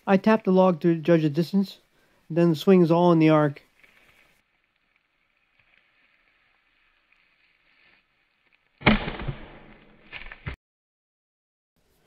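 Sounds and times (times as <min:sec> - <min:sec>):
faint steady hiss: 0:00.0 - 0:08.0
axe splitting log: 0:08.8 - 0:10.6.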